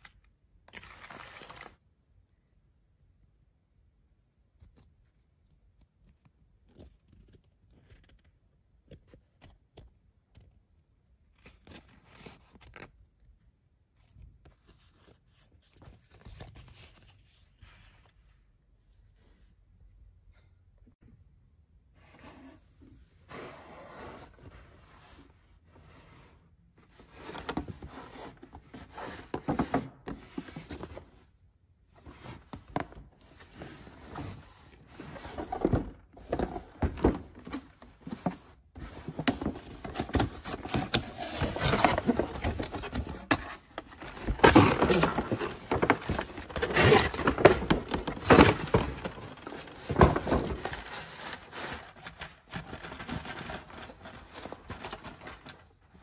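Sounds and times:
cardboard and plastic scraping: 26.8s - 31.2s, 31.9s - 56.0s.

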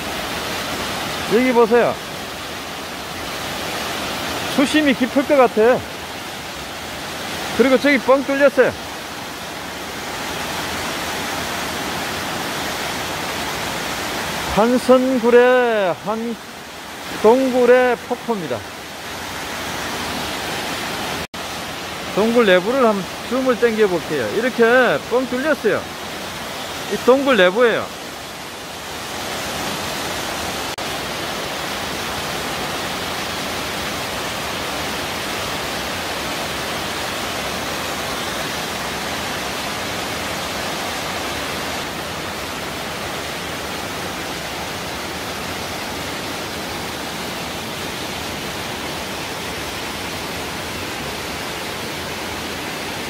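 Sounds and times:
waterfall pouring into pool: 0.0s - 18.9s, 26.9s - 29.1s.

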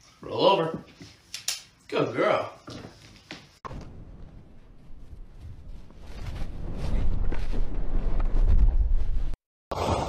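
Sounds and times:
low rumbling rush: 3.7s - 9.4s.

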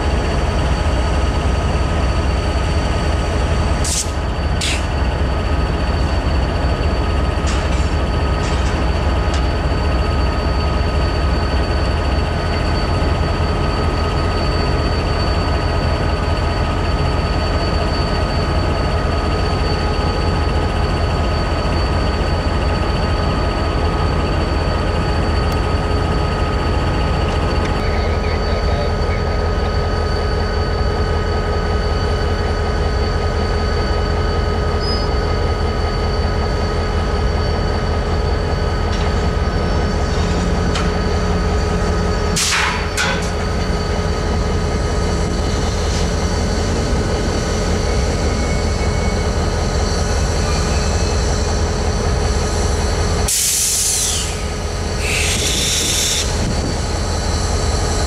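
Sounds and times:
diesel locomotive idling: 0.0s - 58.0s
air hisses: 53.3s - 56.4s.

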